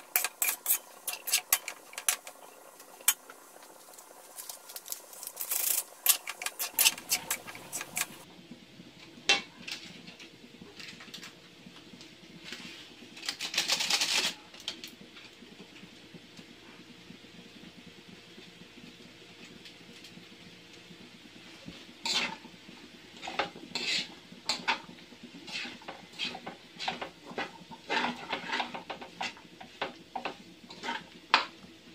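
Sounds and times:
metal spoon scraping a wok: 0.0s - 3.2s, 4.3s - 8.2s, 22.0s - 22.5s, 23.1s - 29.4s, 30.2s - 31.1s.

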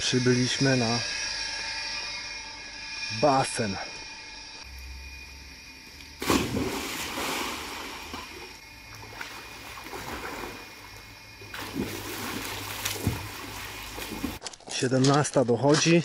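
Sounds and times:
person splashing into pool: 6.2s - 8.5s, 11.5s - 14.4s
water churning: 6.2s - 14.4s.

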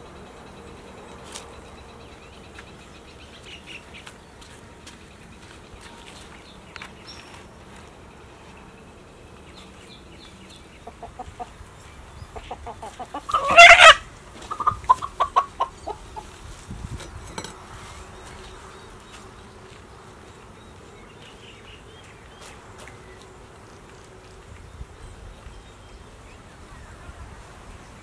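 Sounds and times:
chicken clucking: 10.8s - 11.6s, 12.3s - 16.4s
chicken squawk: 12.4s - 16.2s.

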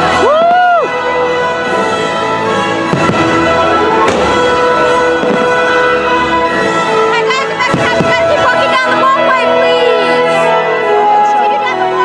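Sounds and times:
loud music: 0.0s - 12.0s
fireworks bangs: 2.8s - 9.1s.

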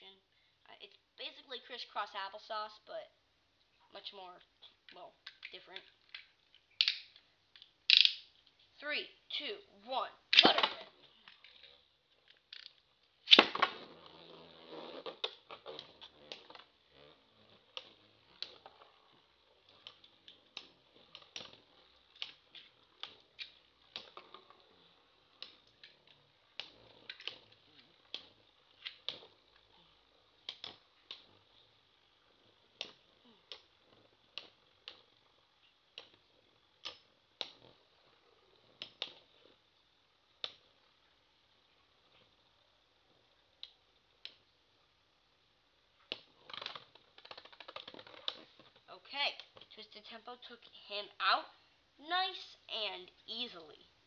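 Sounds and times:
high whir of spinning tops: 9.9s - 50.6s.

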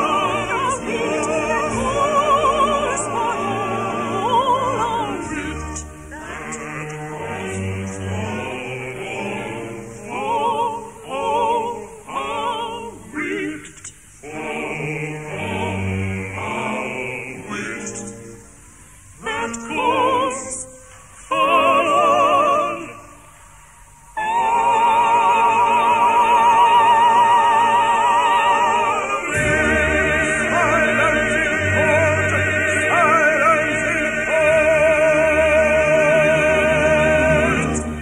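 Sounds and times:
operatic singing: 0.0s - 38.0s
deeper accompaniment: 29.2s - 38.0s.

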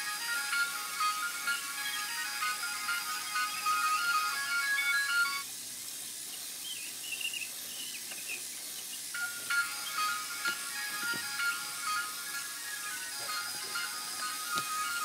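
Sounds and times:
tinny electronic beeping melody: 0.0s - 5.5s, 9.2s - 15.0s.

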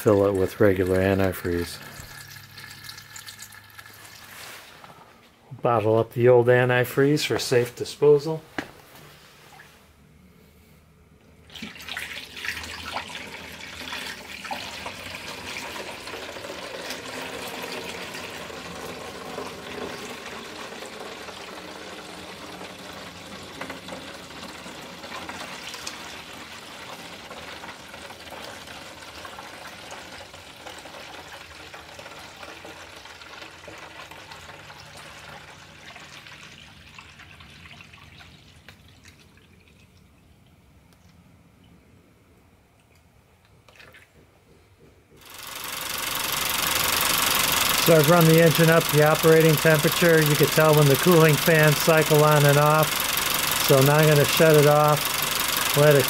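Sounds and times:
liquid splashing into plastic jug: 11.5s - 18.4s, 32.1s - 40.6s, 43.6s - 44.2s.

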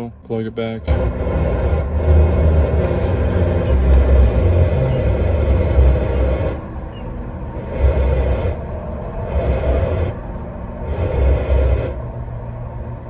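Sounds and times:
radio static: 0.6s - 6.7s.

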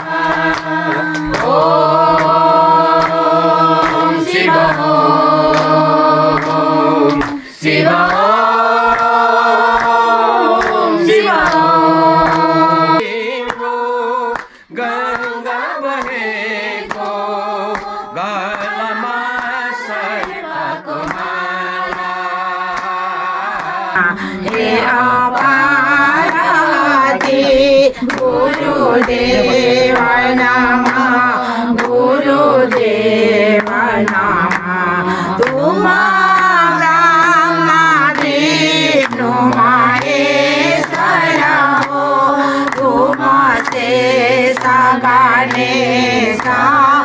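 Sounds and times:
sharp percussive beats: 0.0s - 13.0s
group singing devotional song: 0.0s - 47.0s.

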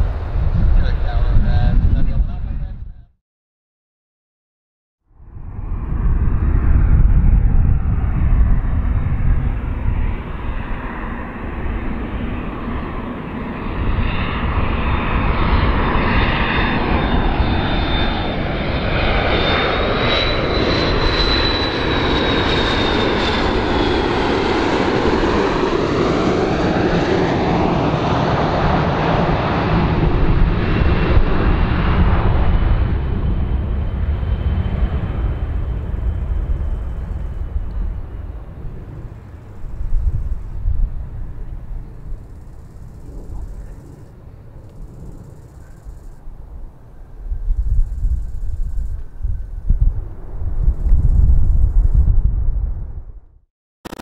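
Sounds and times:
jet airliner flying past: 0.0s - 3.1s, 5.1s - 53.2s
high engine whine: 5.1s - 51.8s.

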